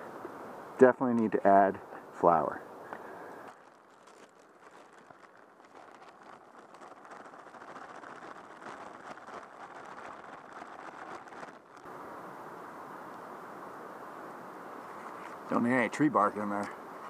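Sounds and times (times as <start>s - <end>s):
plastic bag crinkling: 3.1s - 11.9s.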